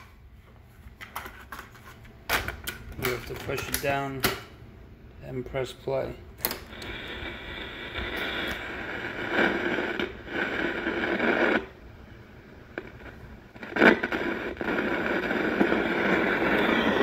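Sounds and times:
scratchy cassette playback on small speaker: 6.5 - 11.7, 12.8 - 17.0.

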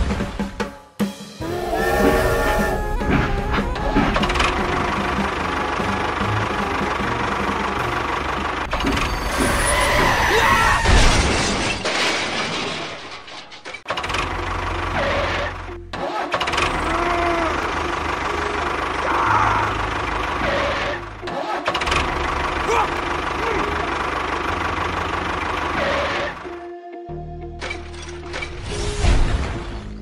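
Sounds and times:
high-pitched gliding sounds: 1.4 - 7.4
engine low buzz: 1.4 - 9.6, 16.5 - 26.7.

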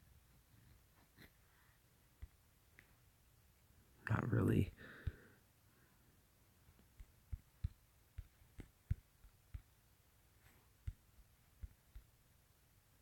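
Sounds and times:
fingertips tapping touchscreen: 2.1 - 3.0, 6.7 - 12.4.

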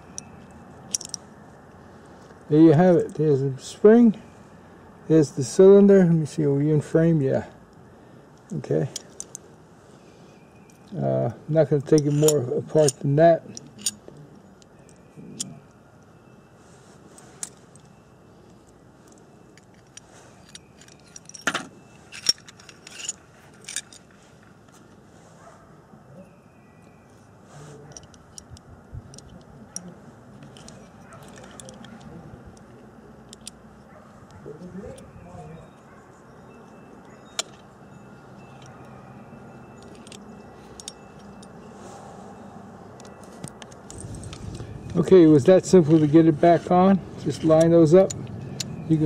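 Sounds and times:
low steady background: 0.0 - 49.0
pistol parts clicking: 0.9 - 1.2, 11.8 - 15.6, 30.4 - 33.7, 47.2 - 48.8.

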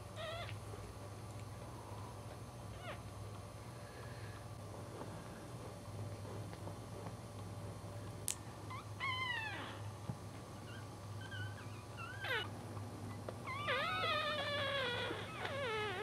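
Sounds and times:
low steady hum: 0.0 - 16.0
puppies squeaking and whimpering: 0.2 - 0.6, 8.7 - 9.9, 10.6 - 16.0.

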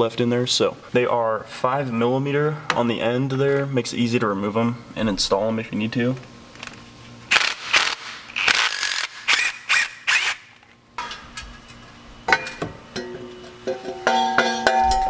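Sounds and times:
cordless power tool bursts: 7.3 - 10.6.

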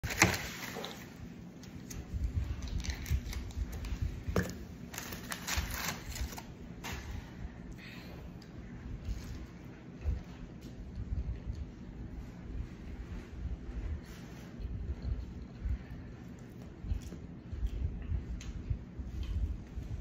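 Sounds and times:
paper bag rustling and crinkling: 0.0 - 1.2, 4.8 - 7.1.

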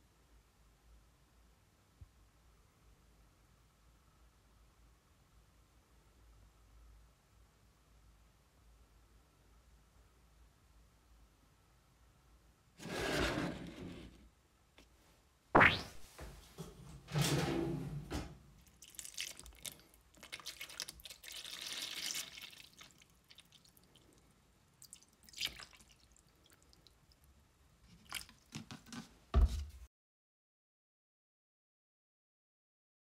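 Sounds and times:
liquid splashing into tub: 15.6 - 16.0, 18.6 - 24.0, 24.8 - 26.8
knocks and clatters of tub: 16.6 - 18.4.

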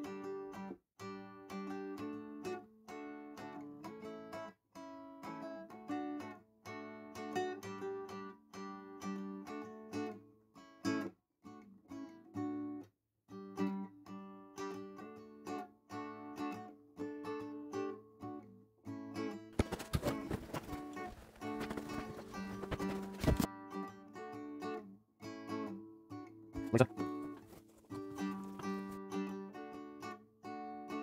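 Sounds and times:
strummed acoustic guitar chords: 19.6 - 24.8, 26.5 - 31.0.

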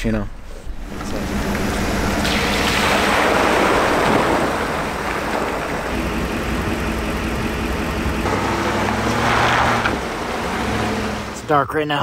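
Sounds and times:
loud rushing noise: 1.2 - 6.0
motor running at low speed: 5.8 - 11.2.

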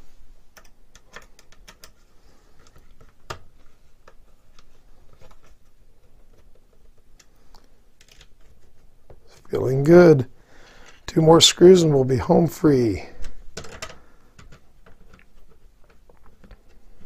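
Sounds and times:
plastic parts clicking: 0.5 - 9.4, 13.2 - 17.0.

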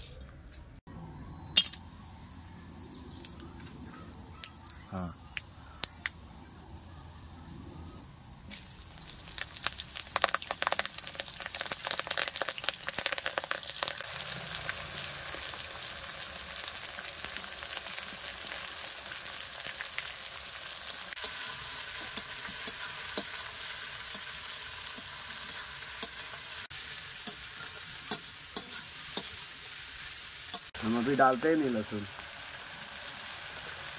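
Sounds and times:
onions sizzling: 2.3 - 7.0, 8.4 - 33.9
spices crackling in hot oil: 8.5 - 33.9
metal spatula stirring: 21.2 - 26.4, 27.2 - 29.5.

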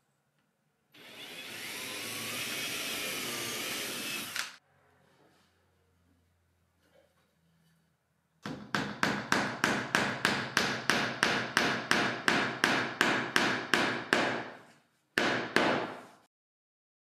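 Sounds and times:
hammer tapping nail into wood: 8.4 - 14.5.

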